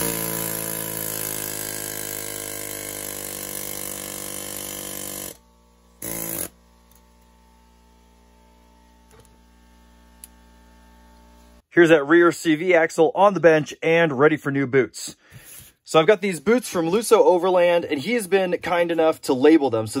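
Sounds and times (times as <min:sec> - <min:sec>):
air hammer buzzing: 0:00.0 - 0:11.6.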